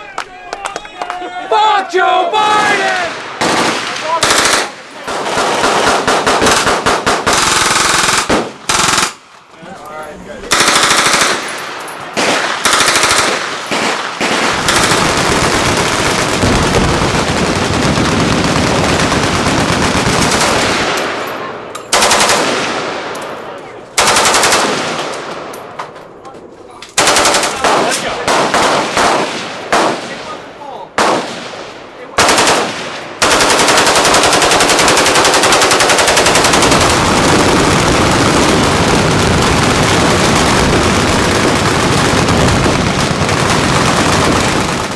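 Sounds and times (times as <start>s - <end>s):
automatic gunfire bursts: 3.4s - 9.2s, 10.5s - 11.5s, 12.2s - 21.0s, 21.9s - 22.8s, 24.0s - 25.0s, 27.0s - 30.2s, 32.2s - 44.9s.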